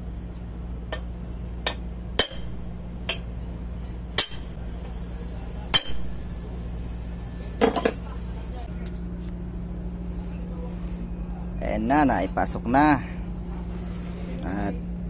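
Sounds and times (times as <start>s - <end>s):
hammer striking steel: 1.7s - 3.2s, 4.1s - 5.0s, 5.6s - 6.5s.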